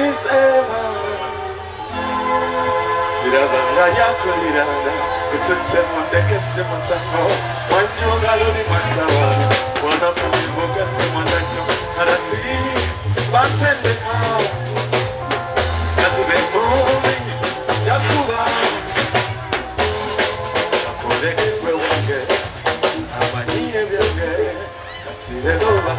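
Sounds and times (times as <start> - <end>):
man singing: 0.0 - 19.3, 20.1 - 25.9
bass line: 0.0 - 25.9
drum kit: 6.3 - 24.5.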